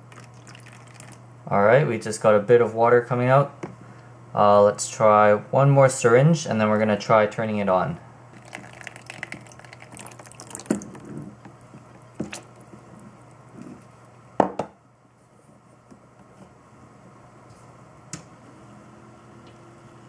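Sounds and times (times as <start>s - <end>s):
fluid dripping and splashing: 0.0s - 1.2s, 8.3s - 13.9s
faint steady hum: 0.0s - 20.0s.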